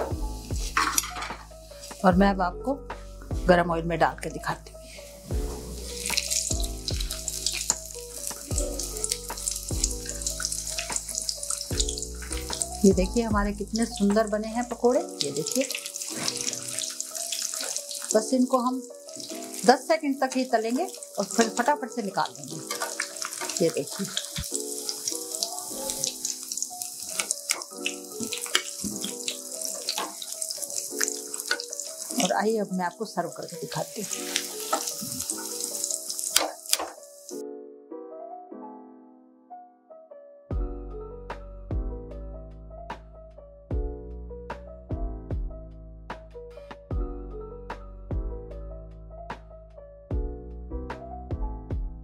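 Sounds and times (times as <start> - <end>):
food sizzling in hot oil: 0.0 - 2.1, 4.1 - 37.4
instrumental music: 0.0 - 50.4.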